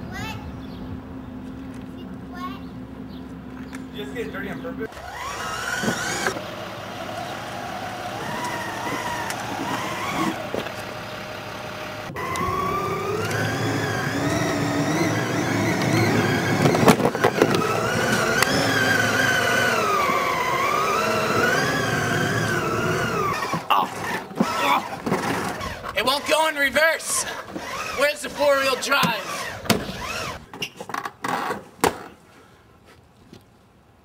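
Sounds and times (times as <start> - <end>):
toy car electric motor whining: 4.9 - 30.6.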